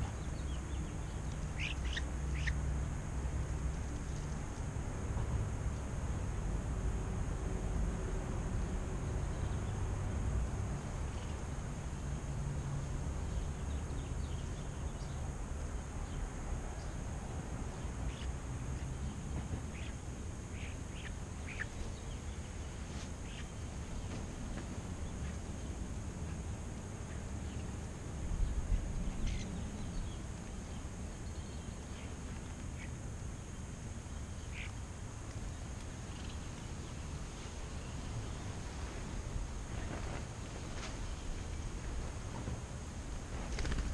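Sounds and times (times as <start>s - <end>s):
starlings chirping and clicking: 0.0s - 2.6s, 17.8s - 22.6s, 23.2s - 23.6s, 29.0s - 30.2s.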